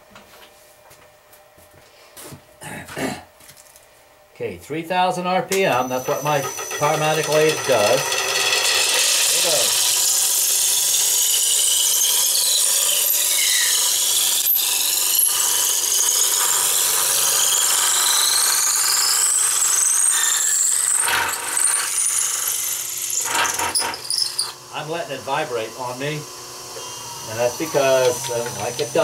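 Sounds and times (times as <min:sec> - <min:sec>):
lathe shaving wood with whine: 0:05.7 - 0:29.0.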